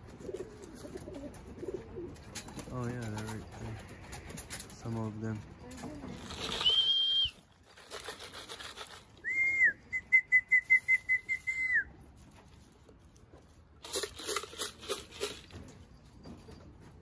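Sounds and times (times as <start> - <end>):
scratchy rustling: 6.0 - 6.9, 7.5 - 9.2
person whistling: 6.6 - 7.4, 9.2 - 11.9.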